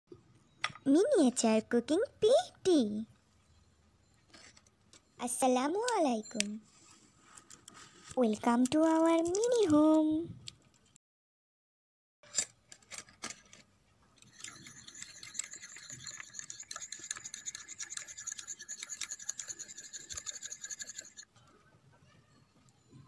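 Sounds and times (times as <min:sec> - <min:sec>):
whisk scraping ceramic bowl: 0:14.2 - 0:21.3.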